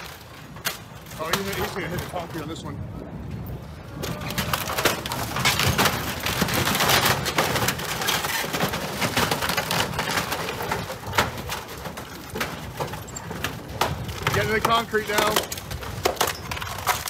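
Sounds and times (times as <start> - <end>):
wooden dock cracking and splintering: 0.0 - 2.3, 3.9 - 17.0.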